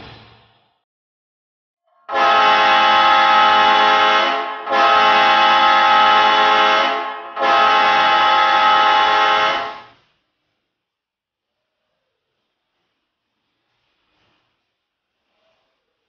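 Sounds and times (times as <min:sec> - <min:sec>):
hockey goal horn blasts: 0:02.1 - 0:10.0.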